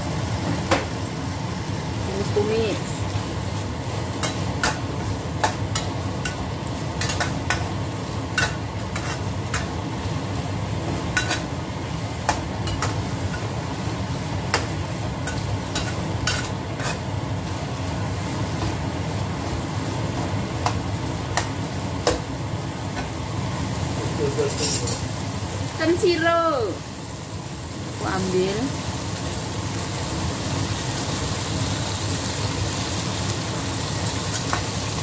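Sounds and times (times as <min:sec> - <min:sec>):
oil sizzling in a wok: 0:00.0 - 0:35.0
metal spatula scraping a pan: 0:08.4 - 0:09.6, 0:15.3 - 0:17.0.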